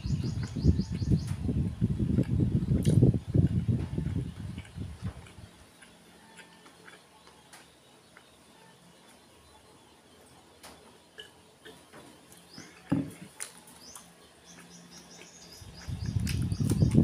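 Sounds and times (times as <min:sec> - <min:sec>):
loud chewing: 0:02.0 - 0:08.4, 0:11.0 - 0:17.0.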